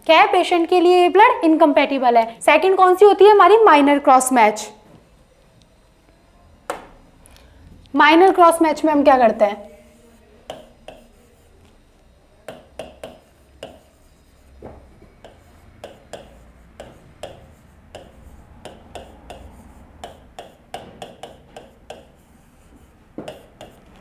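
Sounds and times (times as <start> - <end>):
chalk taps and clicks on board: 9.9 - 24.0.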